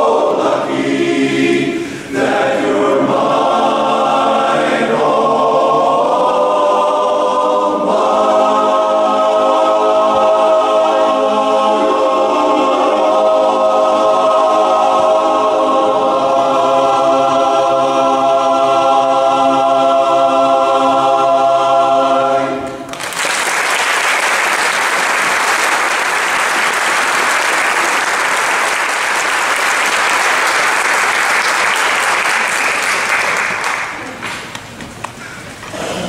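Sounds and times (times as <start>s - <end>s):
men's chorus holding a chord: 0.0s - 22.8s
audience applause: 22.9s - 34.3s.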